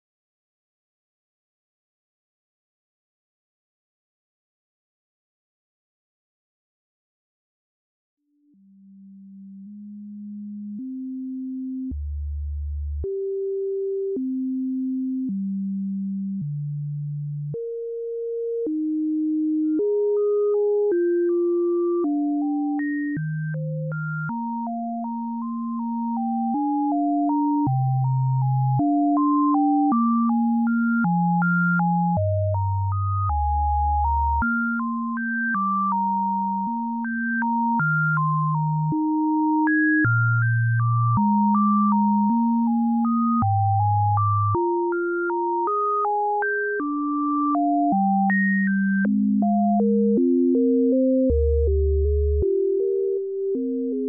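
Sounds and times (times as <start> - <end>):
low synth bass notes: 31.9 - 34.5, 49.2 - 53.0.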